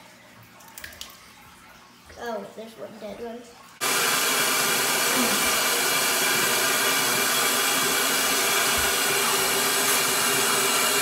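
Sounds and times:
small pump whirring: 3.8s - 11.0s.

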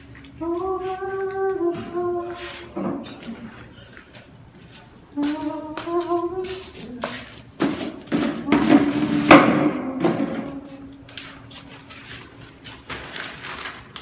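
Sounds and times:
plastic chair knocking and scraping: 7.6s - 10.6s.

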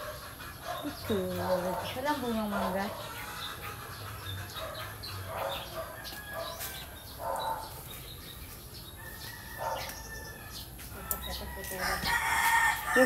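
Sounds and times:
chickens clucking: 0.0s - 13.0s
small birds chirping: 0.0s - 13.0s.

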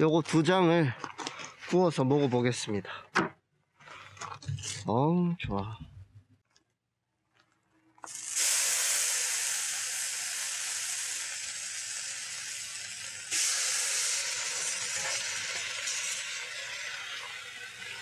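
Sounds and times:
bacon sizzling in skillet: 8.0s - 18.0s.

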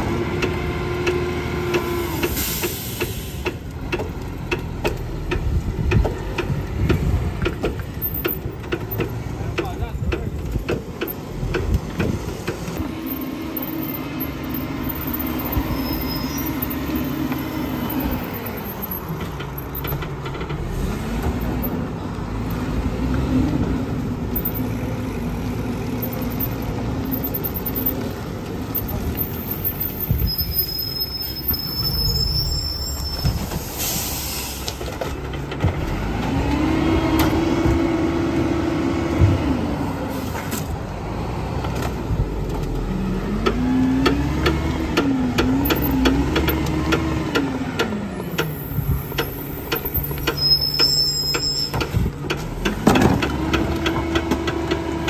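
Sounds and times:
diesel engine revving: 0.0s - 30.4s, 31.0s - 55.0s
air brake hiss: 2.1s - 3.6s, 33.5s - 34.8s
short high squeal: 15.2s - 18.3s, 29.6s - 34.7s, 49.0s - 51.9s.

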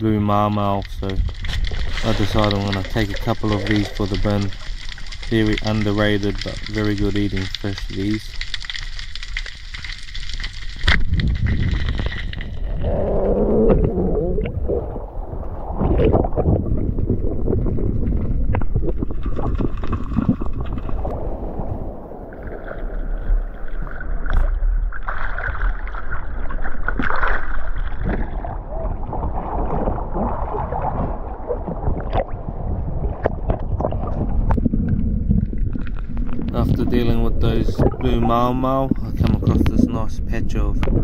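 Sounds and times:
water sloshing and splashing: 0.0s - 40.0s
low rumbling wash: 10.9s - 24.9s, 27.9s - 41.0s.

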